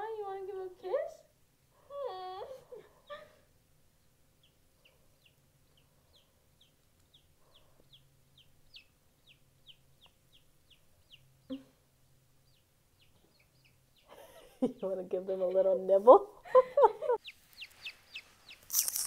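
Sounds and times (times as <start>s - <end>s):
chick peeping: 4.0s - 15.6s, 16.9s - 19.0s.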